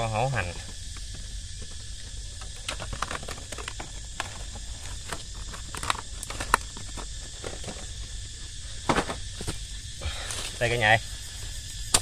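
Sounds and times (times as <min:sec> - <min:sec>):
clicks and rustles of plastic sack: 0:02.4 - 0:09.7.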